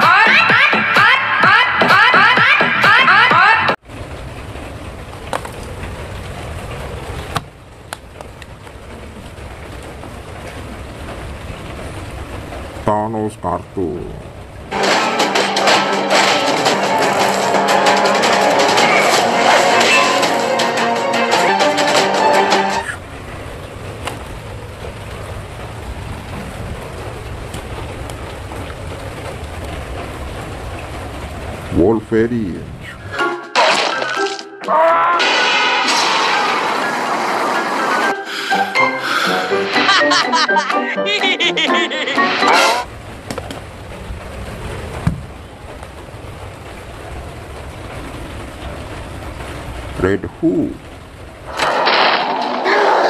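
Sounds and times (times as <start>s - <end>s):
cartoon music with whistle glides: 0.0s - 3.7s, 38.1s - 42.8s
low outdoor rumble: 3.8s - 14.8s, 22.8s - 33.0s, 42.8s - 53.0s.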